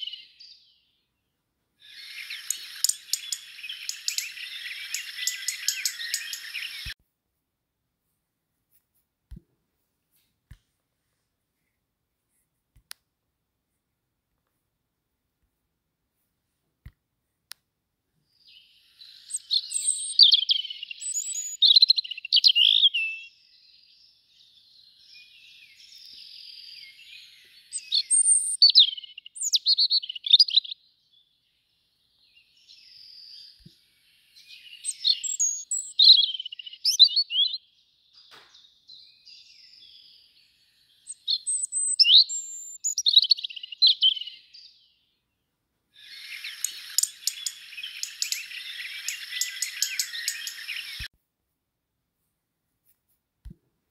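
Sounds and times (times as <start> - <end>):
robin singing: 0.0 - 1.0, 1.8 - 7.0, 18.3 - 45.4, 46.0 - 51.1.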